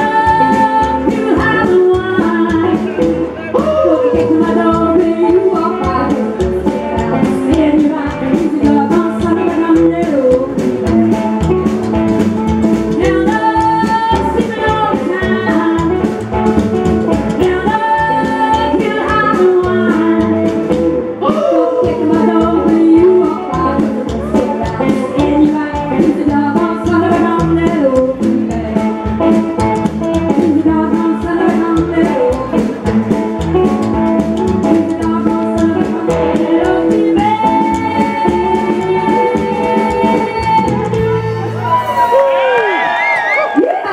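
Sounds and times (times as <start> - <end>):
woman singing: 0.0 - 11.5, 12.8 - 16.2, 17.3 - 33.8, 34.4 - 41.4
upright double bass: 0.0 - 42.5
drum kit: 0.0 - 43.5
electric guitar: 0.0 - 43.9.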